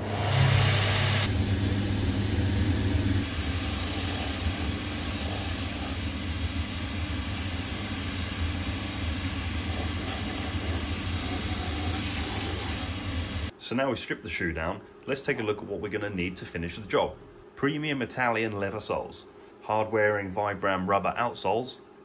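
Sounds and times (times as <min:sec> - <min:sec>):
machine motor hum: 0:00.0 - 0:13.5
sanding wheel rasping on leather: 0:03.3 - 0:06.2, 0:07.2 - 0:13.1.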